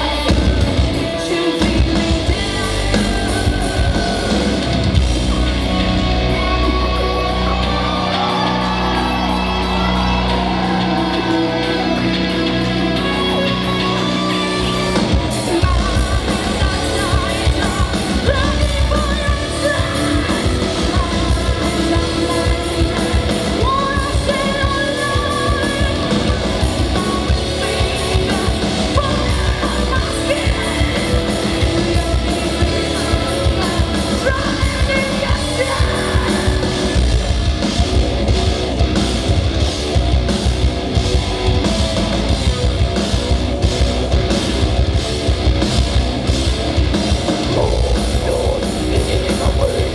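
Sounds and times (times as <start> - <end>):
sung and yelled vocals: 0.0 - 37.4, 47.4 - 49.9
heavy metal band playing: 0.0 - 49.9
fast dense drumming: 0.2 - 7.6, 14.7 - 49.9.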